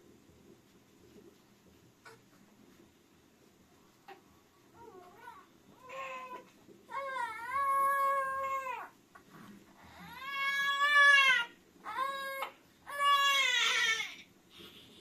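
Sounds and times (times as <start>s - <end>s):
baby crying: 9.9s - 14.2s.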